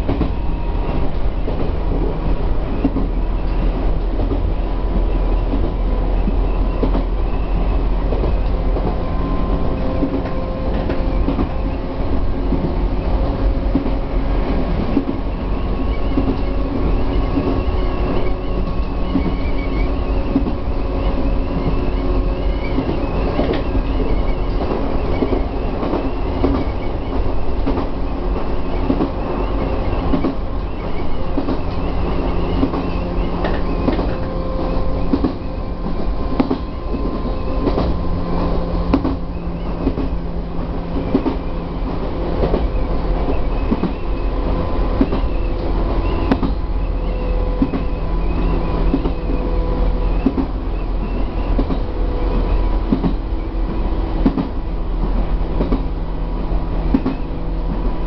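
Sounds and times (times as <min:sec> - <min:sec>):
train motors rumble and hum: 0:00.0 - 0:58.0
wheels clicking over rail joints: 0:17.2 - 0:38.0.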